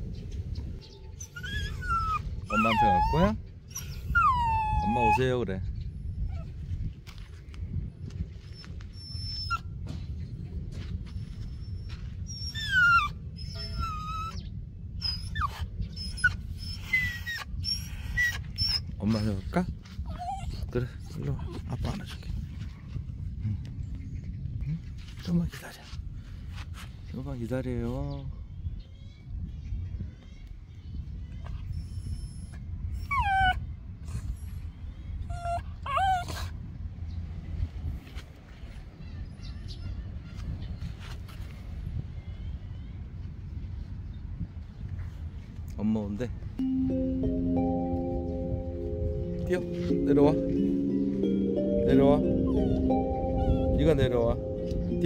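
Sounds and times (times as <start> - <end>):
dog whining: 1.2 - 5.2, 8.6 - 9.7, 12.3 - 14.4, 15.0 - 19.3, 20.1 - 20.7, 31.7 - 34.2, 35.3 - 36.5, 52.5 - 53.7.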